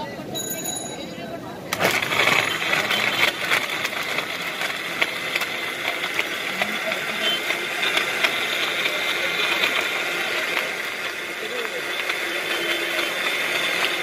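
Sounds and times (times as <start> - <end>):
blender motor running: 1.7 - 14.0.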